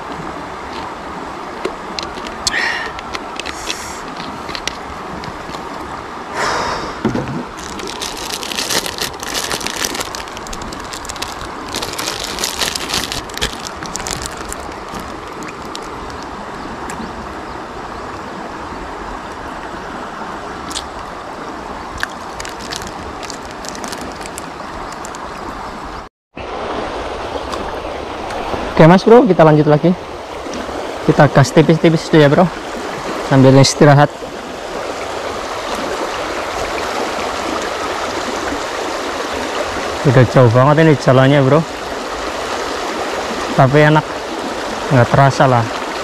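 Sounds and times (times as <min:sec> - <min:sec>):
rushing outdoor noise: 0:00.0 - 0:46.0
bottle cap twisting: 0:07.3 - 0:16.3, 0:22.0 - 0:25.2
plastic wrapper crinkling: 0:07.5 - 0:16.2, 0:22.0 - 0:25.2.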